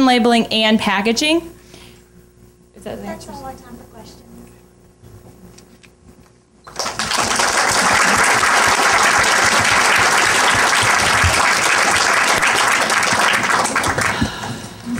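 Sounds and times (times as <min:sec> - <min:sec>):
audience applauding: 0:06.7 - 0:14.6.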